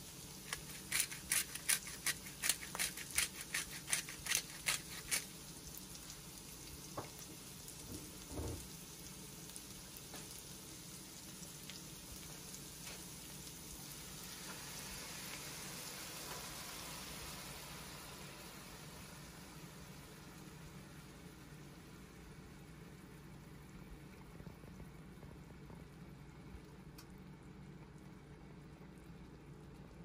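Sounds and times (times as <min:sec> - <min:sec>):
onion sizzling in a frying pan: 0:00.0 - 0:23.3.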